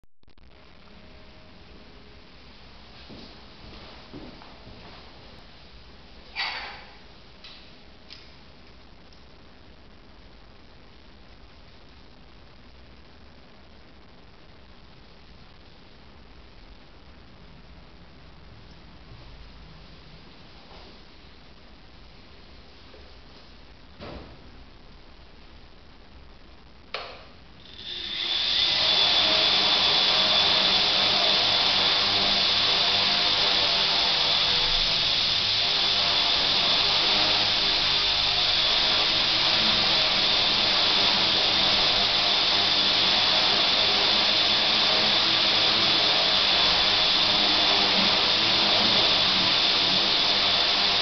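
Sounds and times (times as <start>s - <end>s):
drone motors whining: 27.6s - 51.0s.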